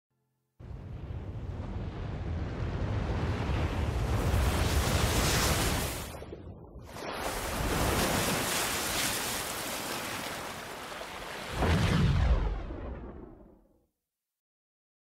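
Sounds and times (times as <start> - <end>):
ocean waves and surf rushing: 0.6 - 13.6
deep boom: 11.6 - 13.7.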